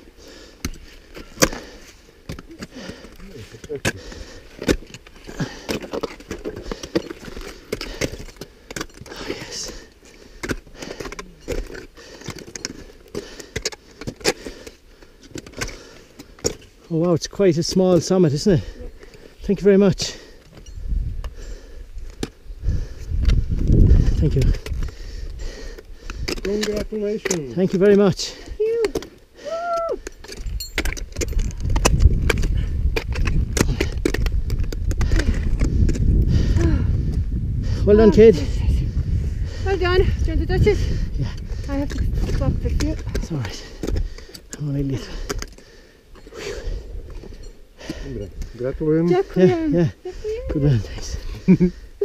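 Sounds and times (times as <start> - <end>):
metal climbing gear jangling: 2.3 - 19.3, 20.1 - 22.3, 30.0 - 36.6, 39.7 - 51.8
wind buffeting microphone: 20.6 - 26.4, 30.4 - 45.3.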